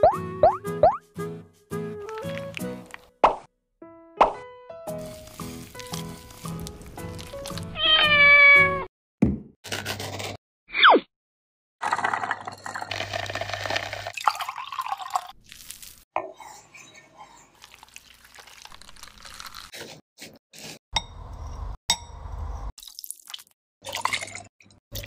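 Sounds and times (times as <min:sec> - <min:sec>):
crunching and clinking: 0:05.0 - 0:07.8
liquid dripping and sloshing: 0:17.6 - 0:19.7.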